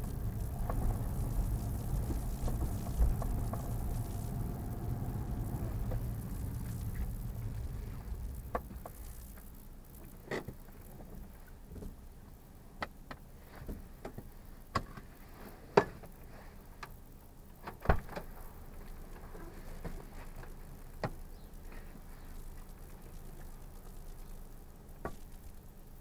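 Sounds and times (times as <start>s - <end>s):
car running gear rumble: 0.0s - 10.6s.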